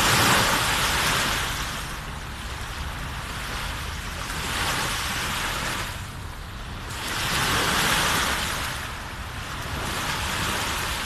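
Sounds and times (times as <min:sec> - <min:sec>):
small waves breaking on shore: 0:00.0 - 0:11.0.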